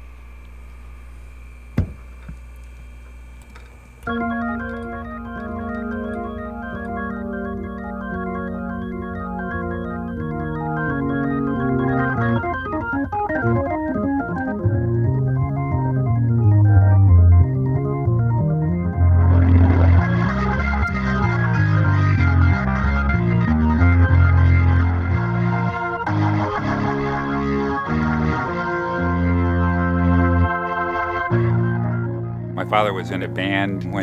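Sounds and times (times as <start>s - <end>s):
low steady hum: 0.0s - 12.4s
organ playing sustained chords: 2.9s - 34.0s.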